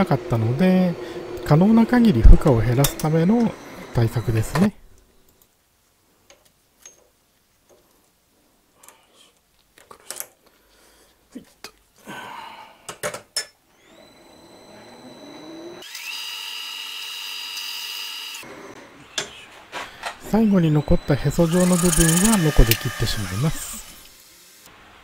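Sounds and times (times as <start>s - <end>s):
lathe motor whine: 0.0s - 4.8s, 13.7s - 18.7s, 20.2s - 24.2s
lathe tool cutting hiss: 20.6s - 24.7s.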